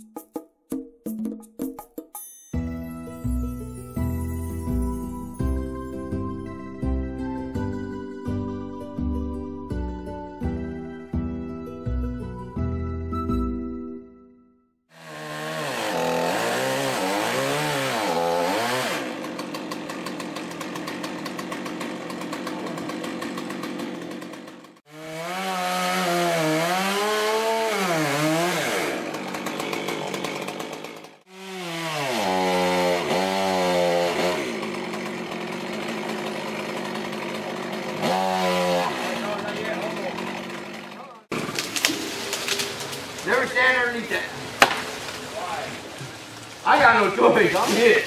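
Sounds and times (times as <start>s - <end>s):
chainsaw revving: 14.9s - 48.0s.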